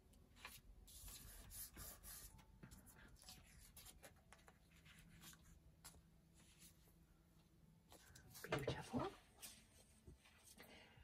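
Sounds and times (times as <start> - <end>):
paper rustling and rubbing: 3.1 - 5.6.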